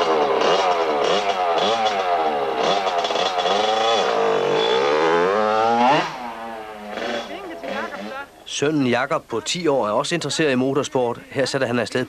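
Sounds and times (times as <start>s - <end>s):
motorbike engine revving: 0.0s - 8.3s.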